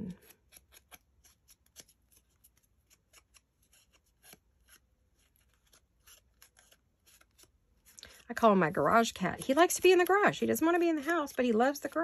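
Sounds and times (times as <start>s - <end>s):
scratchy strokes on paper: 0.0s - 12.0s.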